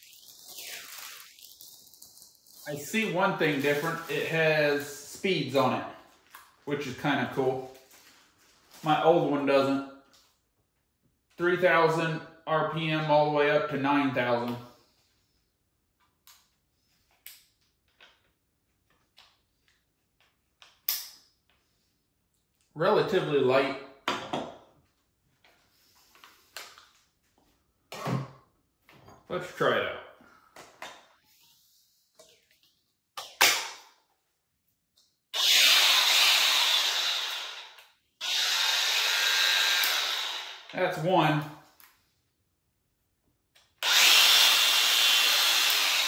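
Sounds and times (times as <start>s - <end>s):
angle grinder whirring: 35.4s - 40.8s, 43.8s - 46.0s.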